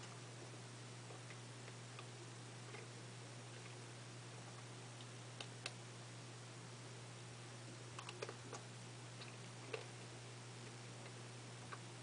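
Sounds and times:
low hum and hiss: 0.0 - 12.0
biting and chewing crunches: 7.9 - 11.9.

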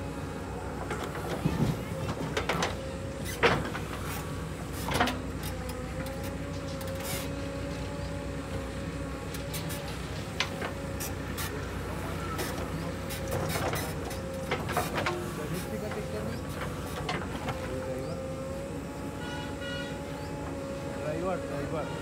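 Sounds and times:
diesel engine running: 0.0 - 22.0.

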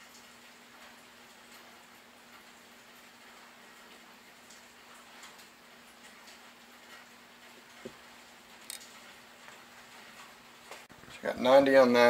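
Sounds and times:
small sharp clicks: 8.6 - 8.9.

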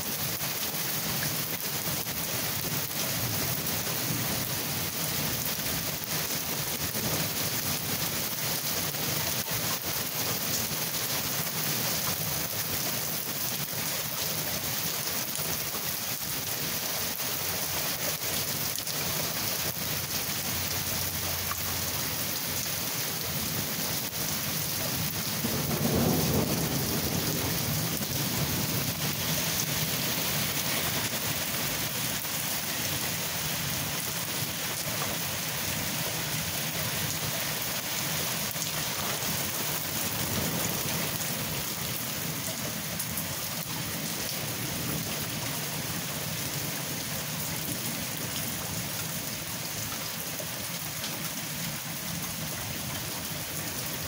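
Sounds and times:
steady rain hissing: 0.0 - 54.0
thunder rumbling: 25.0 - 31.1.

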